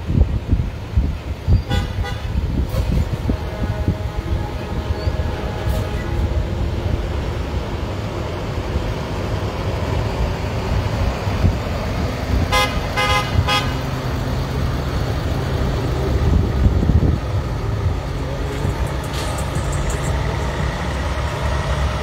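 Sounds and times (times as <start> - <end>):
truck engines rumbling: 0.0 - 22.0
vehicle horn honks: 1.6 - 6.5, 12.5 - 13.8.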